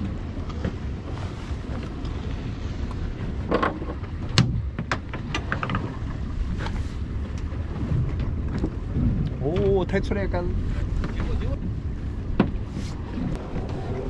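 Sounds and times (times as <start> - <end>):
wind rumble on microphone: 0.0 - 14.0
sharp knocks and clicks: 3.5 - 5.9, 12.4 - 12.6.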